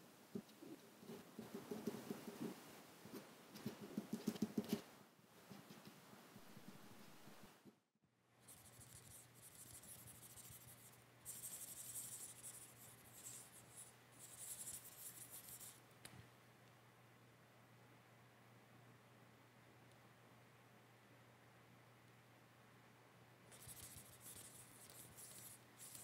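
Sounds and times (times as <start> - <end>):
low steady hum: 0.0 - 26.0
pen scratching on surface: 8.5 - 15.8, 23.5 - 26.0.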